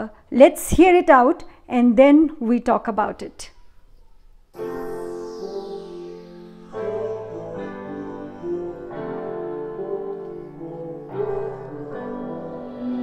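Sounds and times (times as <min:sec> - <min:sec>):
soft keyboard music on speaker: 0:04.5 - 0:13.0.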